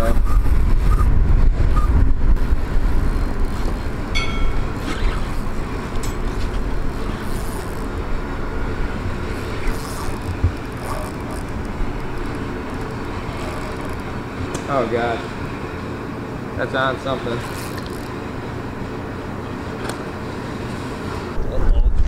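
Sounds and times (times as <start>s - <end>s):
wind buffeting microphone: 0.0s - 7.0s
distant traffic: 0.0s - 21.1s.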